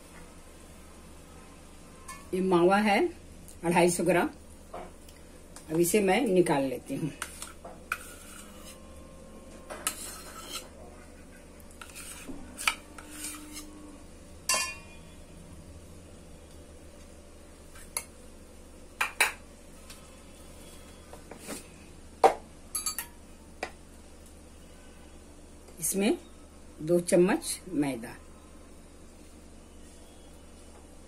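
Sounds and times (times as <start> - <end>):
steel bowls clinking: 14.5 - 15.0.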